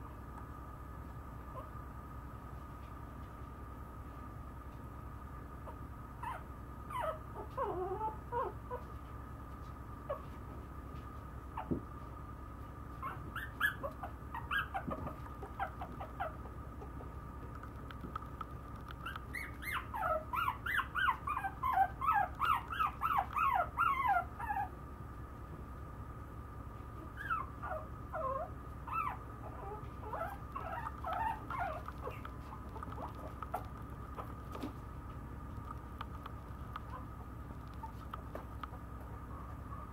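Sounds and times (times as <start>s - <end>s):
puppy whimpering high cries: 6.2s - 8.8s, 13.0s - 16.4s, 19.0s - 24.7s, 27.2s - 32.3s.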